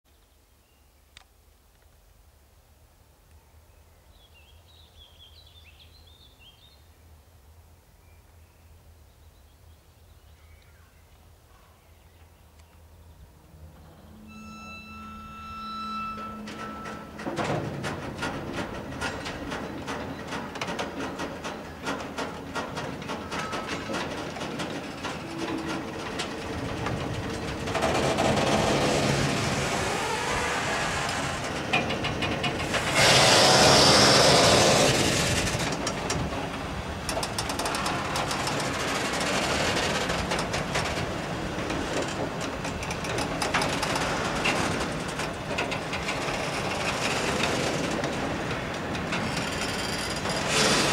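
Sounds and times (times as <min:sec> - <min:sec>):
songbird chirping: 0:03.2 - 0:17.2
freight train starting to roll: 0:13.6 - 0:50.9
coupling knocks and clanks: 0:16.1 - 0:29.4, 0:31.1 - 0:33.5.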